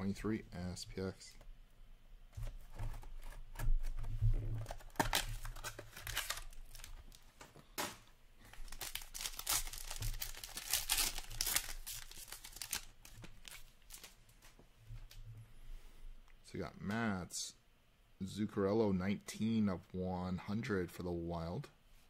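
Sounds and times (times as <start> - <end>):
card pack wrapper tearing: 4.6 - 7.0, 8.5 - 14.1.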